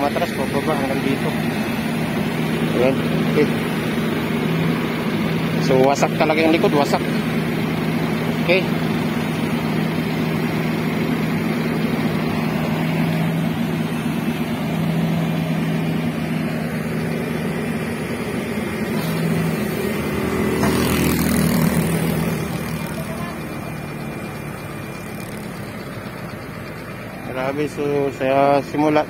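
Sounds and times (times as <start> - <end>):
excavator diesel engine running: 0.0 - 29.0.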